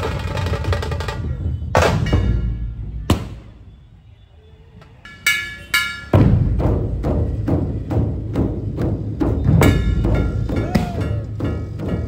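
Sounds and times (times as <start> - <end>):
drum ensemble beating rhythm: 5.9 - 12.0.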